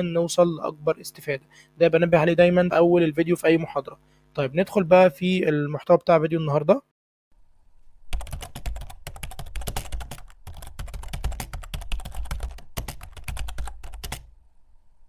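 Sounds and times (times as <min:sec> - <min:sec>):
computer keyboard typing: 0:08.1 - 0:14.3.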